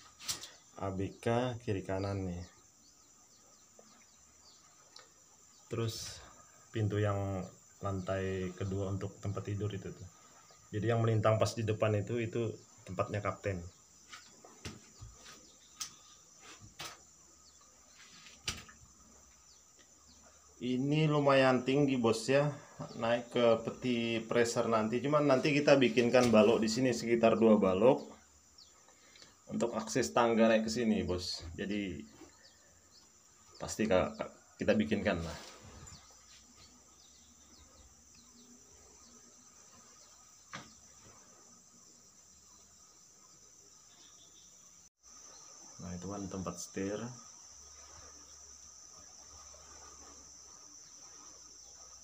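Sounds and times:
faint high insect drone: 0.0 - 52.0
knocks on wooden planks: 14.1 - 16.0, 40.5 - 40.8.

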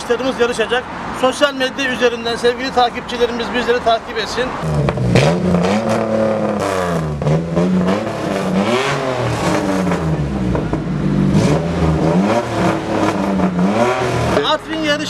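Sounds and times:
race car engine revving: 4.4 - 15.0.

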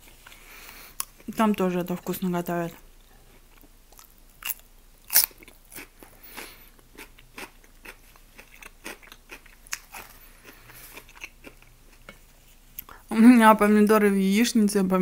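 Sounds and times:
person chewing and eating: 3.4 - 12.9.

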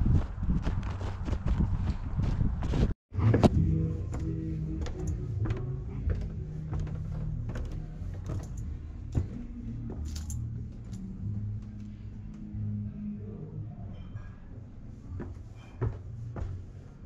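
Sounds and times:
footsteps on wooden stairs: 0.2 - 10.3, 15.2 - 16.6.

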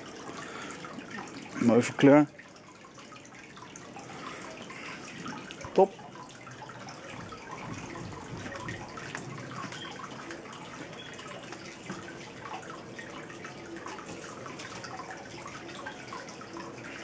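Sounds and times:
water dripping and trickling: 0.0 - 17.0.

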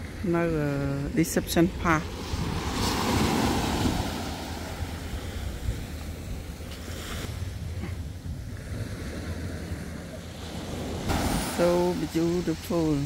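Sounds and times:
wind buffeting microphone: 0.0 - 13.0
sea water washing on shore: 1.8 - 7.5, 9.0 - 13.0.

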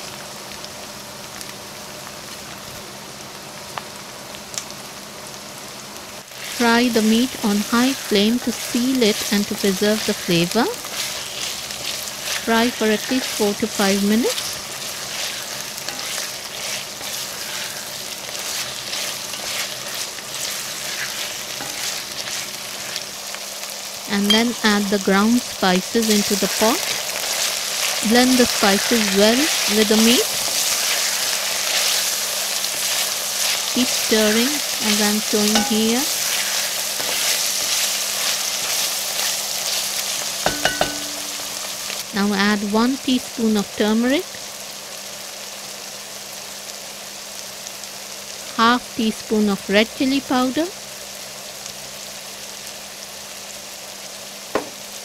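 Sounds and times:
meat sizzling in a pot: 0.0 - 55.0
wooden spoon stirring: 10.8 - 23.1, 26.0 - 41.7.

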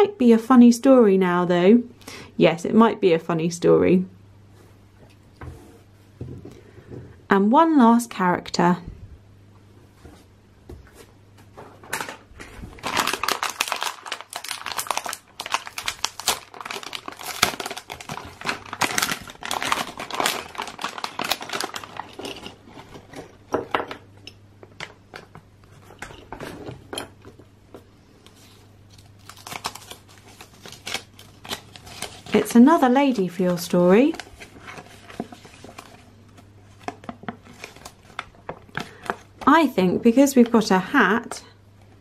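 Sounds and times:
plastic packet crinkling: 12.0 - 23.4, 28.9 - 39.6.

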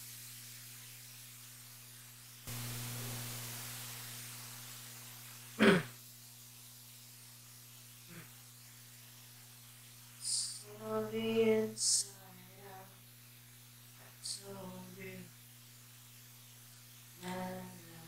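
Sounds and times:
microphone hum and hiss: 2.5 - 6.1
person clearing throat: 5.6 - 6.0.

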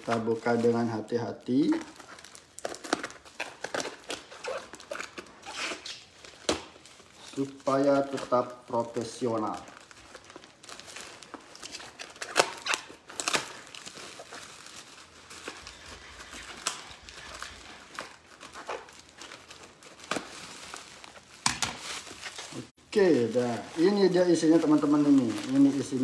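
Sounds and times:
plastic wrapping crinkling: 0.0 - 26.0
tape and cardboard tearing: 2.0 - 6.9, 11.2 - 14.6, 15.3 - 22.6.

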